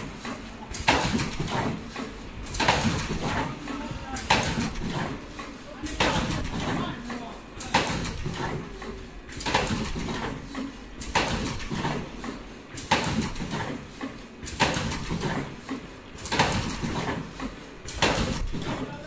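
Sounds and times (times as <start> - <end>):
machine clacking: 0.0 - 19.0.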